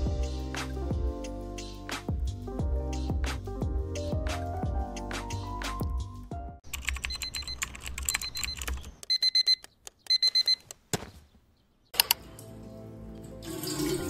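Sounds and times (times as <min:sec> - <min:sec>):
computer keyboard typing: 0:06.6 - 0:10.6
alarm clock beeping: 0:08.2 - 0:10.6.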